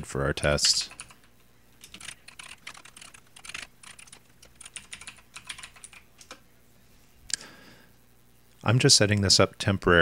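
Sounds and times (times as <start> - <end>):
typing on computer keyboard: 0.6 - 6.4.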